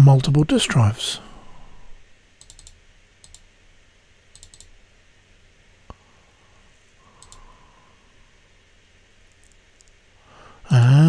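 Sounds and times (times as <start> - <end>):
computer mouse clicks: 2.4 - 3.5, 4.3 - 4.8, 7.2 - 7.5, 9.2 - 10.0.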